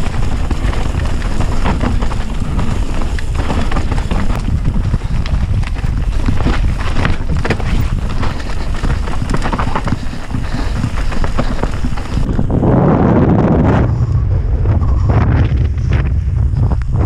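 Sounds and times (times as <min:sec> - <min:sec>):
tyres crunching on gravel: 0:00.0 - 0:12.6
bike rattling over rough ground: 0:00.0 - 0:14.0
wind buffeting microphone: 0:00.0 - 0:17.0.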